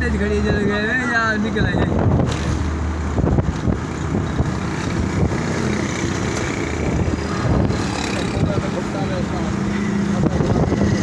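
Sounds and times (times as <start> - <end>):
vehicle engine hum and road noise: 0.0 - 11.0.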